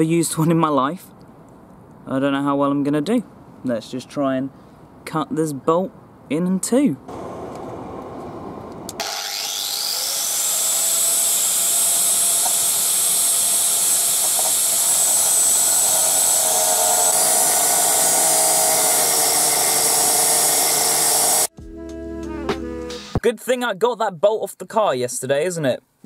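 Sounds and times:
angle grinder cutting metal: 8.9s - 21.5s.

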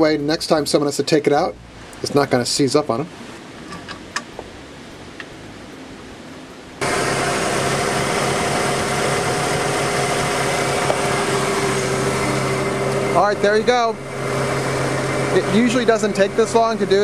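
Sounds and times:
truck engine idling: 6.8s - 17.0s.

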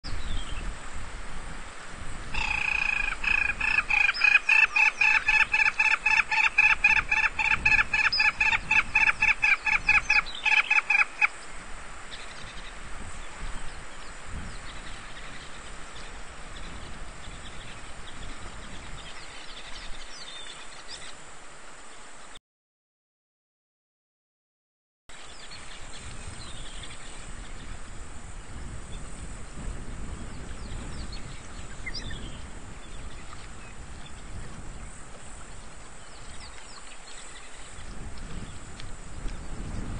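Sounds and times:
bird calling rapid notes: 2.4s - 11.3s.

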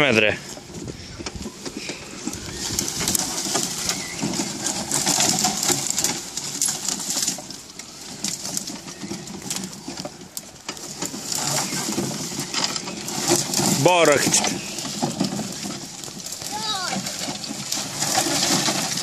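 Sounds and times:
dry vegetation rustling and crackling: 0.0s - 19.0s.

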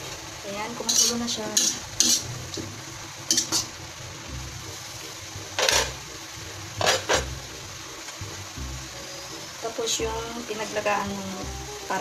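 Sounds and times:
spatula scraping a wok: 0.8s - 2.7s, 3.3s - 3.8s, 5.5s - 6.0s, 6.8s - 7.6s.

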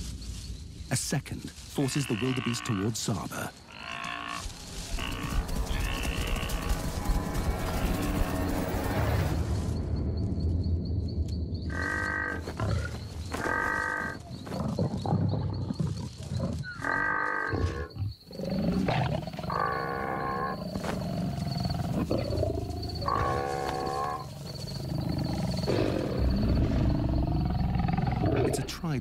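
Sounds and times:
wavering animal calls: 3.7s - 6.9s, 11.7s - 28.6s
lions growling: 11.7s - 28.8s.

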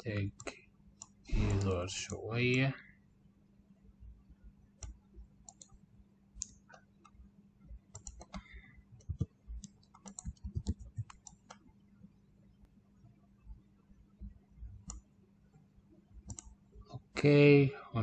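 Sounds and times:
mouse and keyboard clicks: 4.8s - 5.8s, 7.9s - 11.6s, 14.8s - 15.0s, 16.2s - 16.6s.

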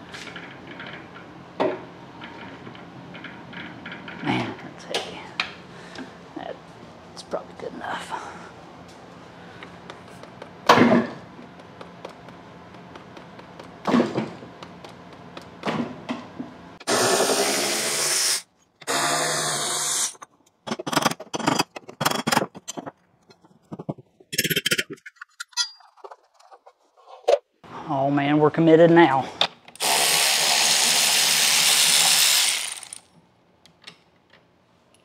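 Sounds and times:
cordless drill running: 29.8s - 33.0s.

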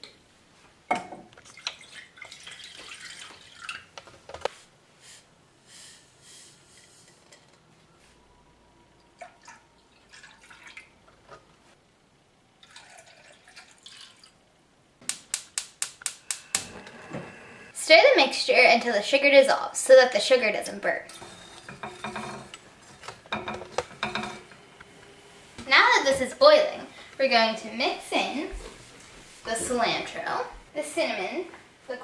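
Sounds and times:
liquid pouring into saucepan: 9.2s - 10.9s, 12.6s - 14.4s
gas burner igniter clicking: 15.0s - 17.3s
glass and spoon clinking on pan: 21.2s - 22.6s, 23.3s - 24.6s.

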